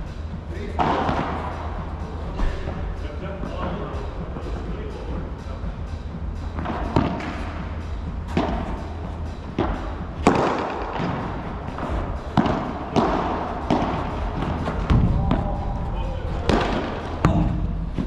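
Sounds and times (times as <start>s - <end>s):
steady low hum: 0.0s - 18.0s
rackets hitting ball: 0.8s - 1.6s, 6.5s - 7.5s, 8.3s - 15.5s, 16.3s - 18.0s
ball bouncing on court: 9.6s - 15.5s.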